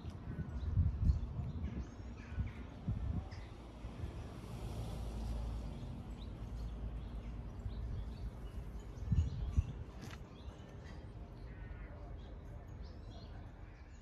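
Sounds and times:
faint birds chirping: 0:05.7 - 0:14.0.

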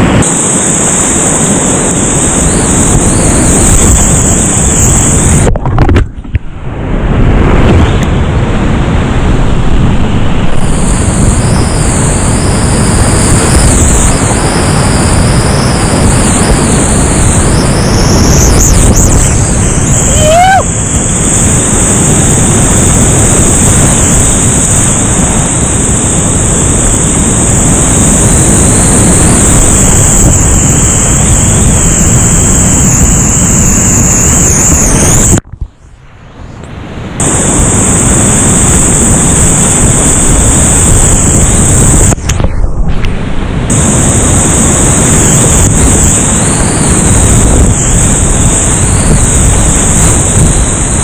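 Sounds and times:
rising whistle-like tone: 0:17.2 - 0:20.7.

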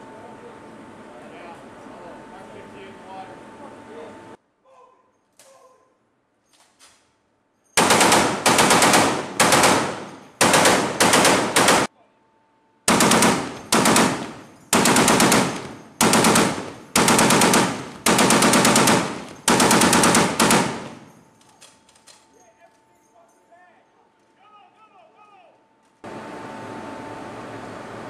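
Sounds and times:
machine gun firing bursts: 0:07.8 - 0:11.9, 0:12.9 - 0:21.2.

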